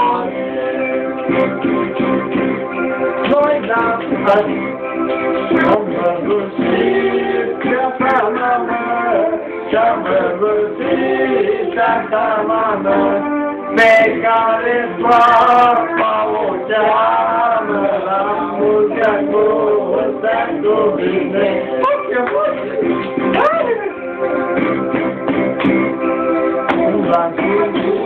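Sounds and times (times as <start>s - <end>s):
young men singing together: 0.0s - 1.4s, 3.2s - 4.6s, 5.5s - 22.8s, 26.7s - 28.0s.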